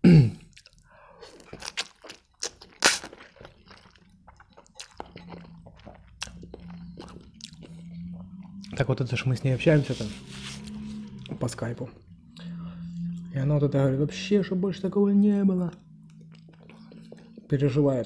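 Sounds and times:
wet chewing clicks: 0.5s - 9.1s, 15.6s - 17.8s.

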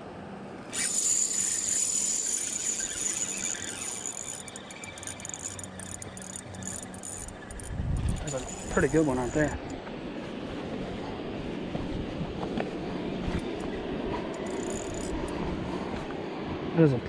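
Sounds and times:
fishing reel whirring: 0.6s - 9.8s, 14.3s - 15.4s.

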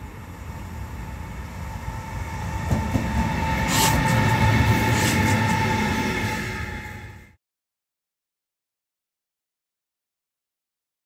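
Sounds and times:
electric locomotive passing: 0.0s - 7.4s
wheels clacking on rail joints: 2.4s - 6.7s.

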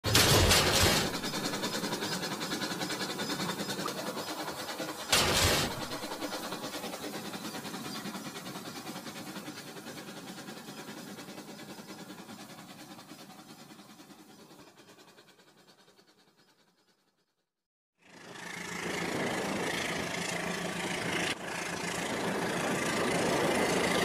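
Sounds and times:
toy train cars crashing: 0.0s - 1.9s, 5.1s - 6.5s
toy train wheels clattering: 0.0s - 14.1s.

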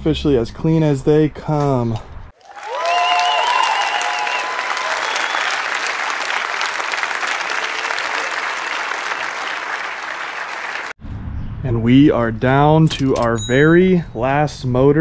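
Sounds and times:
crowd applauding: 2.4s - 11.0s
crowd cheering: 2.4s - 11.0s
whistle: 3.0s - 5.7s.

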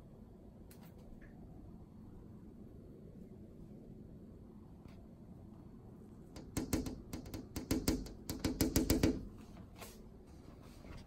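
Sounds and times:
fingertip tapping on glass: 6.4s - 9.3s.

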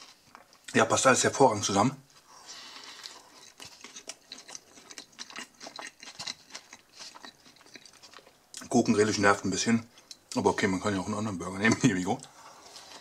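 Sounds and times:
person chewing food: 0.0s - 0.7s, 2.1s - 8.7s, 9.9s - 10.4s.

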